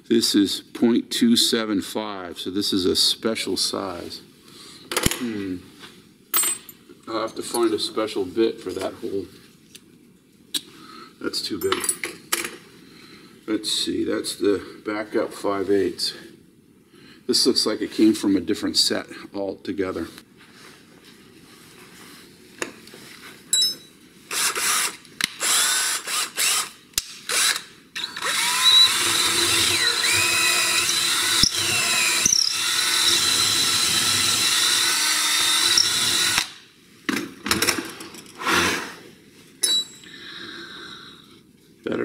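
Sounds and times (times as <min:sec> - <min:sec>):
cordless drill boring into wood: 0:24.3 - 0:36.6.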